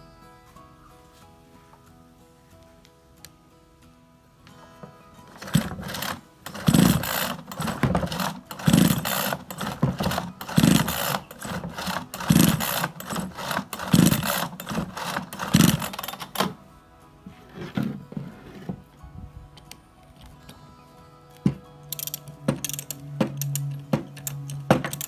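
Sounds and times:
chainsaw recoil starter pulls: 5.3 - 16.6, 21.5 - 25.0.

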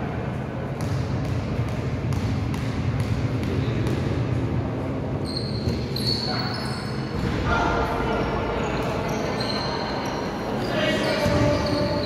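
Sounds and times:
low hall hum: 0.0 - 12.0
basketball bouncing on floor: 0.8 - 4.2
short high squeak: 5.2 - 7.0.

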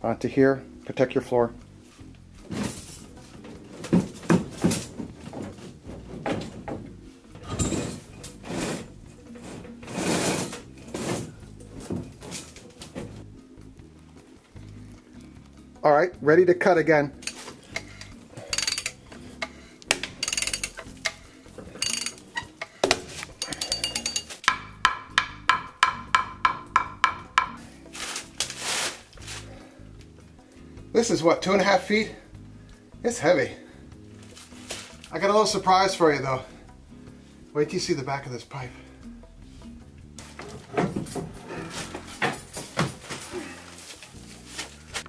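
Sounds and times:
iron pipe knocking and scraping: 3.8 - 13.2, 17.4 - 27.6, 40.2 - 43.2
ratchet wrench clicking: 17.2 - 19.0, 19.9 - 21.2, 21.8 - 22.2, 23.4 - 24.2.

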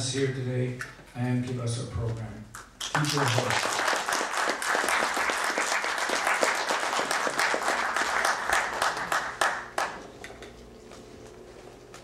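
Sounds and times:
audience applauding: 2.8 - 10.1.

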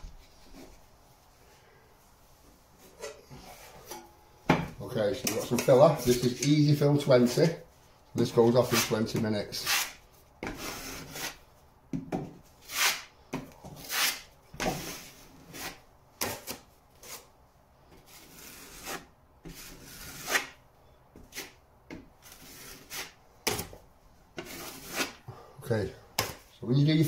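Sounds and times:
knife scraping wet plaster: 8.6 - 9.0, 9.6 - 11.4, 12.6 - 13.1, 13.8 - 17.3, 18.1 - 20.6, 22.2 - 23.7, 24.4 - 25.2.

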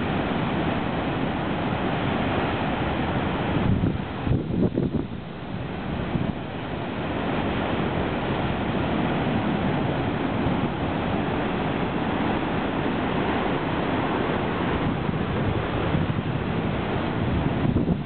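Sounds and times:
storm surf breaking on rocks: 0.0 - 18.0.

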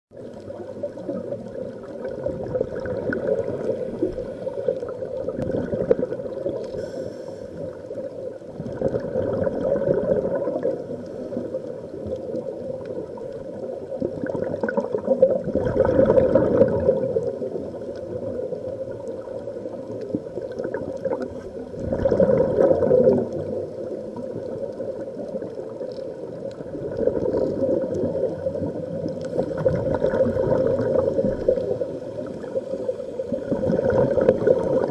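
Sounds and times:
underwater bubbling and gurgling: 0.1 - 34.9.

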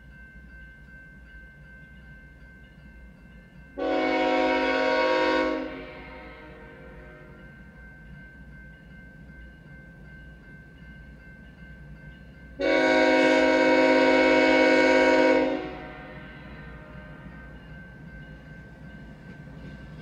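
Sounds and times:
faint approaching train: 0.0 - 20.0
locomotive air horn blast: 3.8 - 7.4, 12.6 - 17.0.

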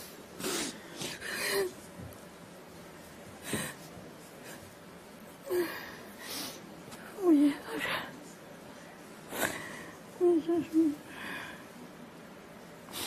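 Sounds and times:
woman sobbing: 10.2 - 11.2.

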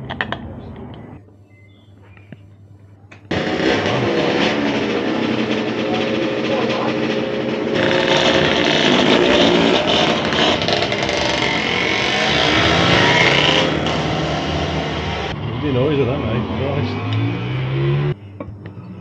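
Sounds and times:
loud rushing noise: 3.3 - 18.2
motorcycle engine running: 3.3 - 18.2.

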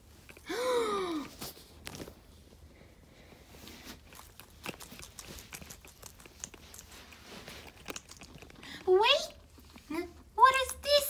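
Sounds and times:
guinea pig crunching lettuce: 3.5 - 11.0.

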